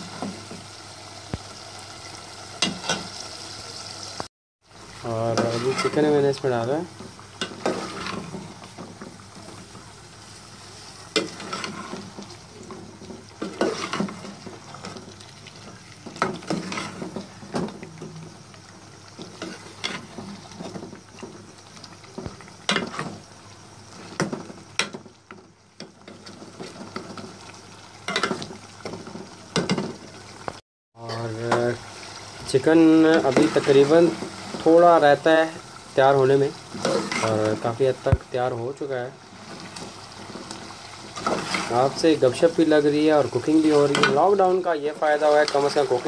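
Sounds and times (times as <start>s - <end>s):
frying sizzle: 0.0s - 46.0s
spoon scraping metal pot: 5.4s - 6.1s, 7.4s - 8.4s, 16.3s - 17.2s, 36.7s - 37.4s.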